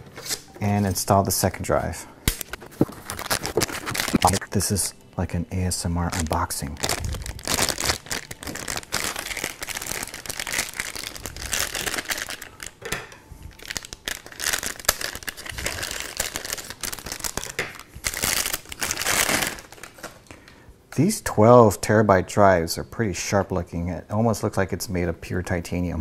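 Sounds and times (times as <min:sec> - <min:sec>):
plastic bag crinkling: 0:02.6 - 0:04.8, 0:06.0 - 0:12.9, 0:13.5 - 0:20.3.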